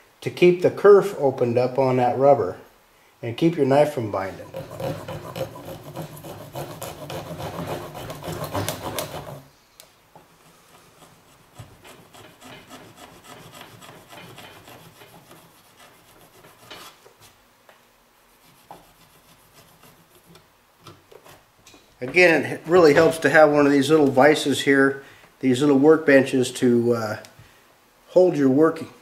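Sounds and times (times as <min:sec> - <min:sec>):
knife sawing through rubber: 0:04.2 - 0:09.5, 0:10.8 - 0:16.8, 0:18.4 - 0:20.4.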